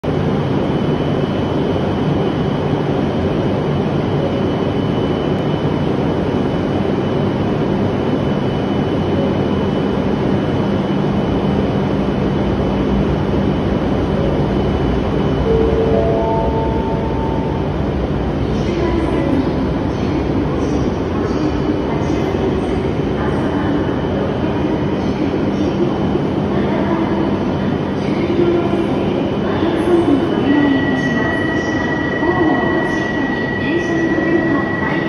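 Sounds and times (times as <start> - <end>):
train equipment hum: 9.1 - 35.0
thin high whine: 15.3 - 18.2.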